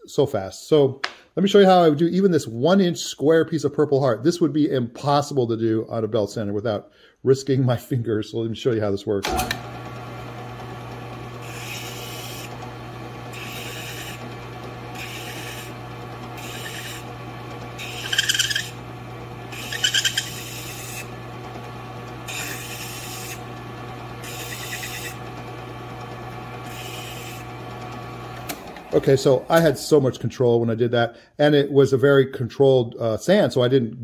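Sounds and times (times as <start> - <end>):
drill press humming: 9.2 - 30.0
wood block rasping on sanding disc: 11.4 - 12.5, 13.3 - 14.3, 14.9 - 15.8, 16.4 - 17.1, 17.8 - 18.8, 19.5 - 21.2, 22.2 - 23.5, 24.2 - 25.2, 26.7 - 27.5.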